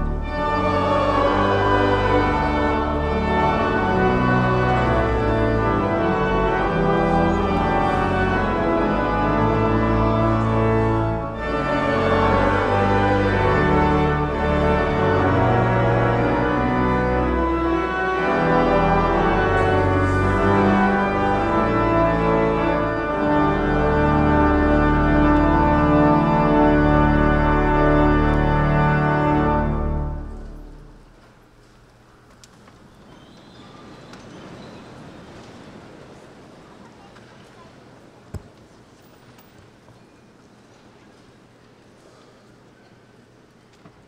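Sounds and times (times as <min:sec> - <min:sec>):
pipe organ chords: 0:00.0 - 0:31.3.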